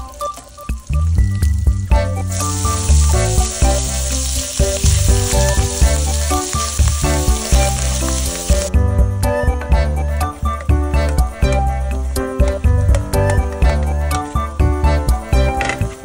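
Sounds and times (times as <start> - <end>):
bacon sizzling in a pan: 0.0 - 8.7
background music: 0.0 - 16.0.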